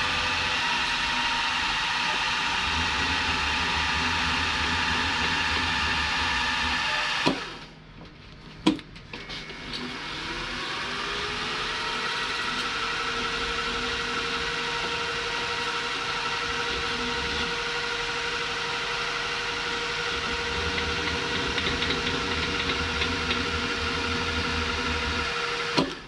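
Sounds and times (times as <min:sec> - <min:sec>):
milling machine motor running: 0:00.0 - 0:07.7, 0:09.5 - 0:26.0.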